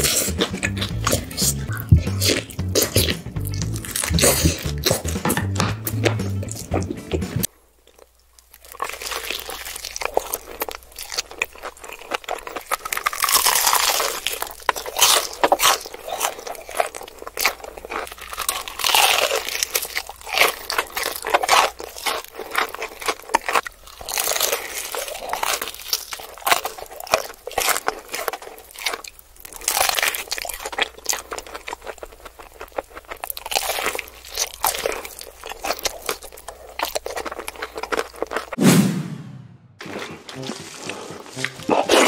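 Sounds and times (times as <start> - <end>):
crunchy chewing of fried chicken: 0.0 - 5.2, 7.7 - 38.6, 39.8 - 42.0.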